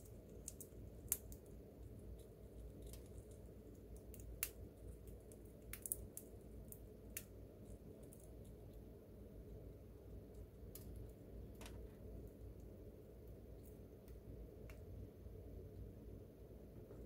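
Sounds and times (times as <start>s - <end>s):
chipmunk cracking seeds: 0.0s - 8.9s, 9.5s - 12.8s
low steady hum: 0.0s - 17.0s.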